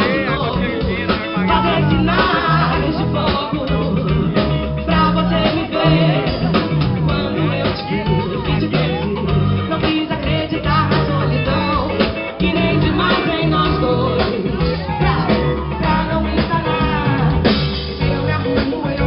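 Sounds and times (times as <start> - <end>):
drum kit: 0.0 - 19.0
electric guitar: 0.0 - 19.0
woman singing into a microphone: 0.0 - 19.0.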